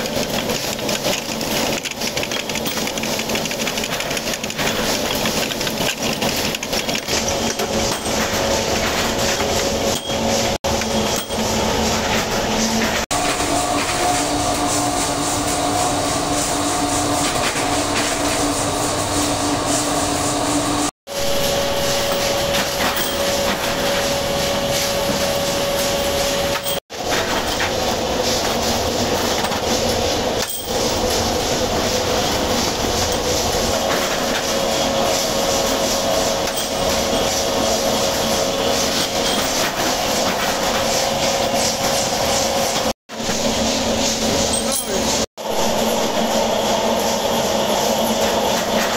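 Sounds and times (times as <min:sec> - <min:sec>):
rapid metallic clatter: 0:00.0 - 0:13.1.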